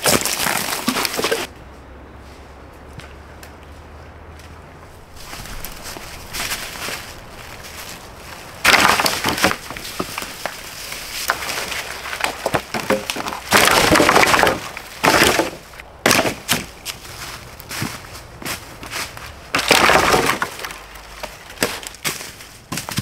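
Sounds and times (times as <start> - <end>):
sticks snapping and breaking: 0.0 - 1.5, 5.3 - 17.0, 18.9 - 23.0.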